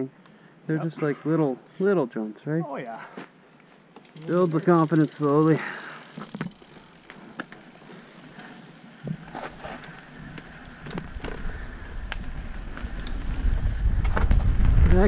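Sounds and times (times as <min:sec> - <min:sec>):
bike clicks and knocks: 0:03.9 - 0:14.7.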